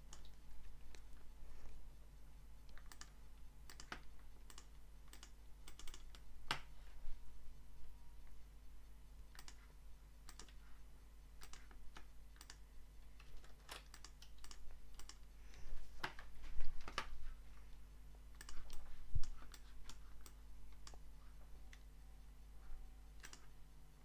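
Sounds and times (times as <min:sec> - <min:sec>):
steady low hum: 0:00.0 - 0:24.0
mouse and keyboard clicks: 0:02.7 - 0:06.7, 0:09.3 - 0:09.7, 0:10.3 - 0:10.6, 0:11.4 - 0:12.6, 0:13.2 - 0:15.2, 0:18.4 - 0:21.0, 0:23.2 - 0:23.5.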